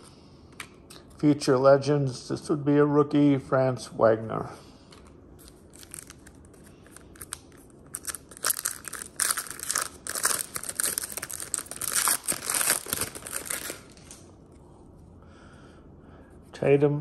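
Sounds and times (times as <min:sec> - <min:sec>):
wrapper crinkling and tearing: 0:05.0 - 0:14.3.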